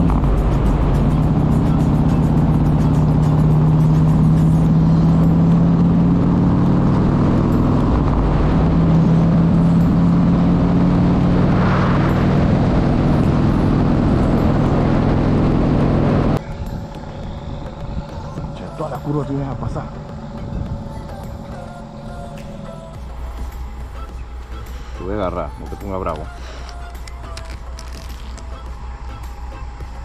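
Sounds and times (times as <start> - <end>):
motorbike engine running: 0.0 - 25.6
wind rushing over microphone: 3.4 - 22.8.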